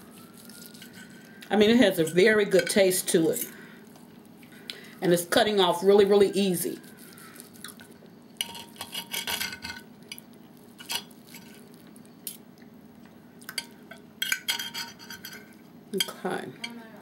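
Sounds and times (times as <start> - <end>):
knife and fork scraping plate: 8.4 - 9.8, 14.2 - 15.5.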